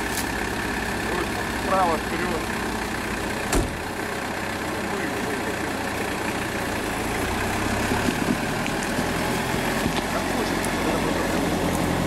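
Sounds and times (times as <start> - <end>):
truck engine running at low revs: 0.0 - 12.0
sharp knock: 3.5 - 3.8.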